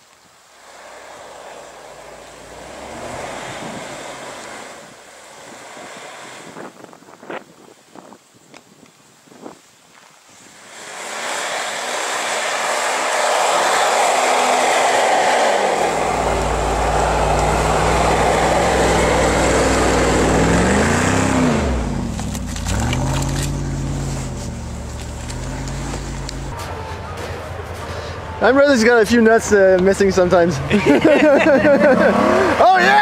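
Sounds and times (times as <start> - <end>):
car engine under load: 0.0 - 6.9, 10.5 - 26.6
tires churning snow: 0.0 - 8.1, 9.9 - 33.0.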